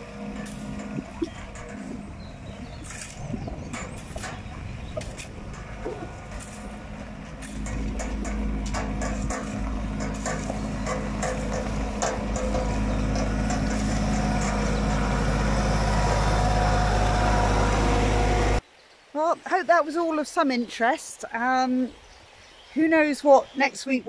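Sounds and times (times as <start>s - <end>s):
rake scraping gravel: 0.0s - 18.6s
tractor engine running: 0.0s - 18.6s.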